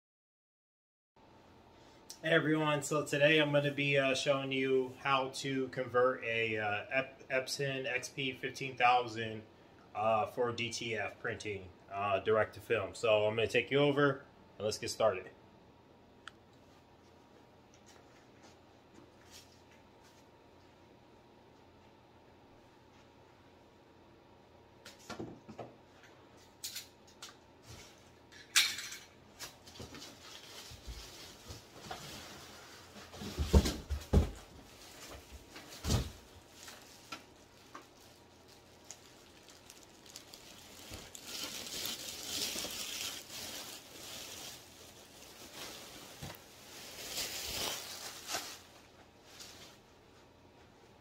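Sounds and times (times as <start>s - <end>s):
cardboard and plastic rustling: 29.3s - 49.9s.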